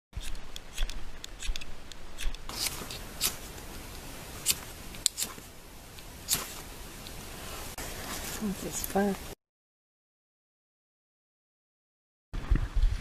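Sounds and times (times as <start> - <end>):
loud scraping strokes: 0.2 - 5.6.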